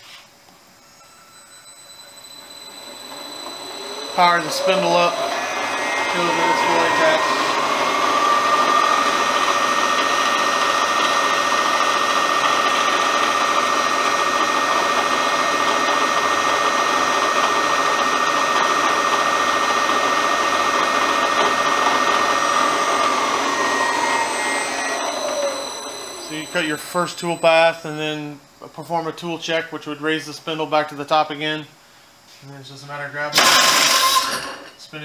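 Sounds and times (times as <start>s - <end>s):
milling machine spindle whine: 0.7s - 28.4s.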